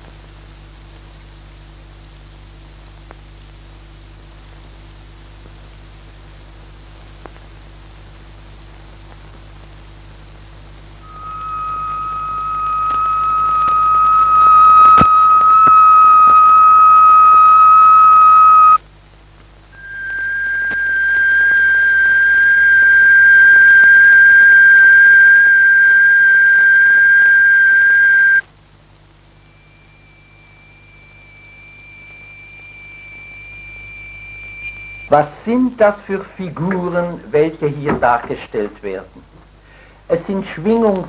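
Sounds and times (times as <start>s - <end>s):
electronic sine tones: 10.9s - 18.8s, 19.7s - 35.2s.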